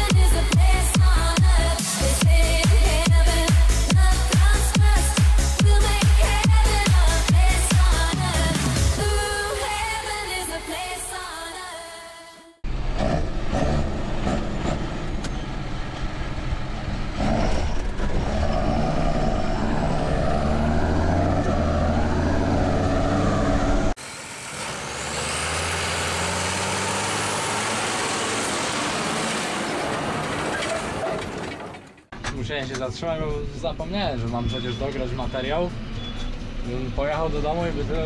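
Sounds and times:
tractor diesel engine running: 12.6s - 32.2s.

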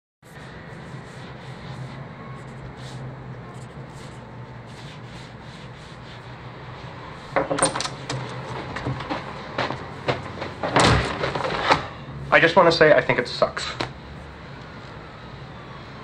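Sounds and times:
pencil scratching on paper: 0.2s - 6.4s
low room hum: 0.3s - 16.0s
sharp knocks and clatter: 7.3s - 11.9s.

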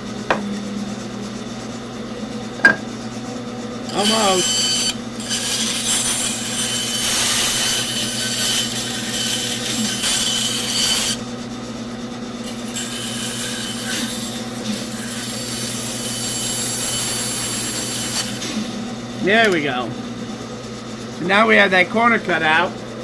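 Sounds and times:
bandsaw motor hum: 0.0s - 23.0s
saw blade cutting wood: 3.9s - 11.2s, 12.4s - 18.7s.

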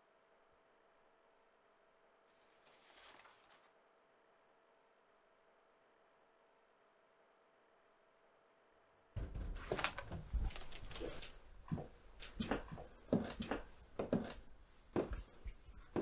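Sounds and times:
door opening: 9.2s - 12.8s
footsteps on floor: 9.3s - 14.4s, 15.0s - 16.0s.

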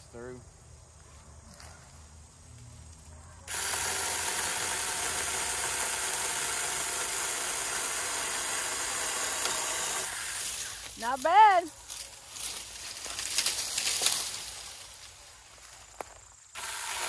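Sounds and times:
chainsaw cutting branch: 3.5s - 11.2s, 16.5s - 17.0s.

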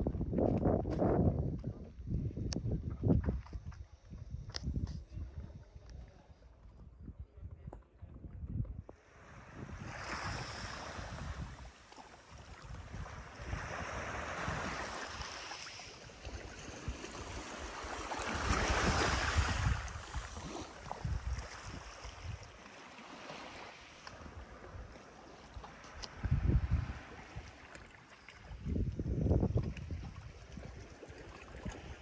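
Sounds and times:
wind rumbling on microphone: 0.0s - 22.7s, 23.4s - 32.0s
sea waves breaking: 9.0s - 32.0s.

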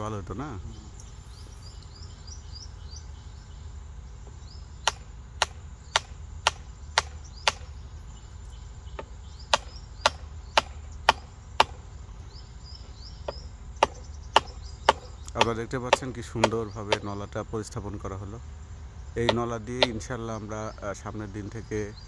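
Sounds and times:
wooden knocks on tree trunk: 9.0s - 11.8s, 13.2s - 17.1s.

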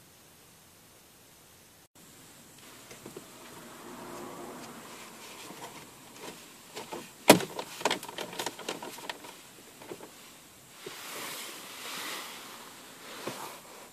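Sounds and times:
soft rustle: 2.5s - 13.9s
plastic air vent snapping in: 6.2s - 10.1s.

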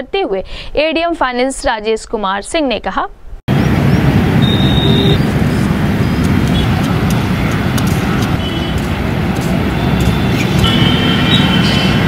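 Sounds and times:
low rumbling outdoor noise: 3.2s - 12.0s.

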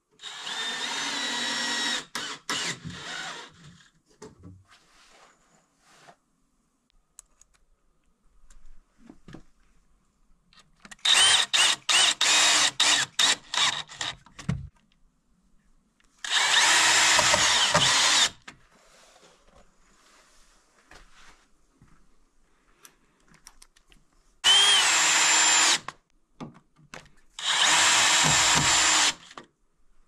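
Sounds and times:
cordless drill driving screws: 0.2s - 3.6s, 10.9s - 14.2s, 16.2s - 18.4s, 24.4s - 26.0s, 27.4s - 29.4s.

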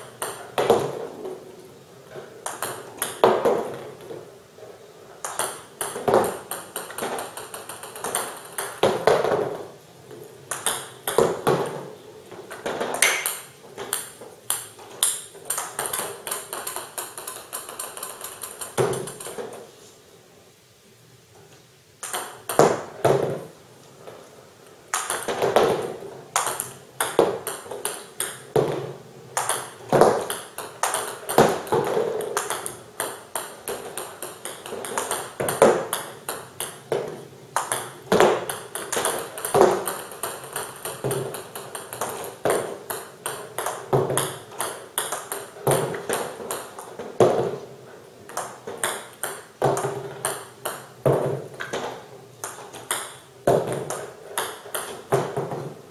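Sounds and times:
ball bouncing on table: 0.2s - 1.1s, 2.4s - 4.1s, 5.2s - 9.6s, 10.5s - 11.9s, 12.5s - 19.6s, 22.0s - 23.5s, 24.9s - 47.6s, 48.3s - 55.8s
paddle striking ball: 24.9s - 47.6s.

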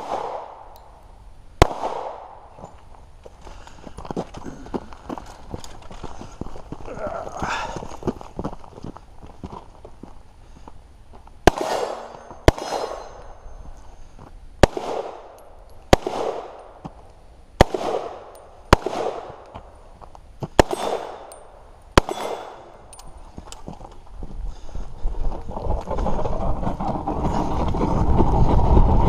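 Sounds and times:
pistol gunshots with echo: 0.0s - 0.8s, 1.6s - 2.5s, 11.4s - 13.6s, 14.6s - 16.8s, 17.6s - 19.5s, 20.6s - 23.1s.

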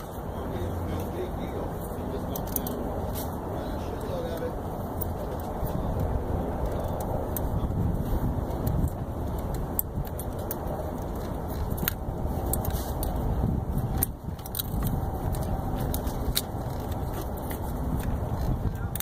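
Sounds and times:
steady low rumble: 0.0s - 19.0s
small metallic clicks and clinks: 2.3s - 3.3s, 8.6s - 19.0s.

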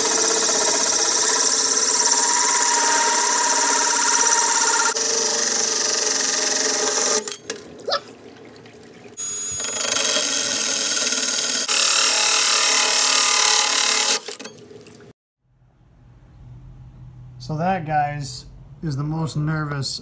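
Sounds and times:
drill grinding through glass: 0.0s - 7.4s, 9.2s - 14.4s
water running: 7.5s - 9.2s.

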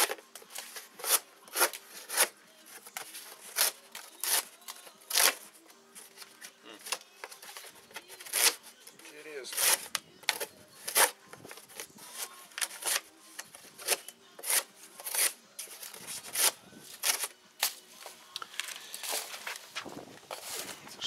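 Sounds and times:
knife cutting cardboard: 0.0s - 5.5s, 6.2s - 8.6s, 9.5s - 17.3s.

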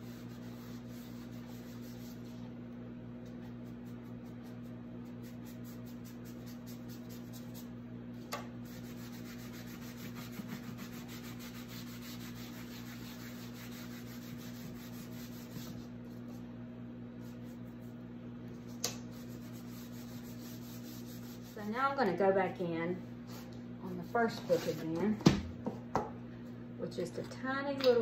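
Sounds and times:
cloth rag wiping wax on book: 0.0s - 2.5s, 8.6s - 16.4s, 19.1s - 21.8s, 23.3s - 25.0s
steady low hum: 0.0s - 28.0s.

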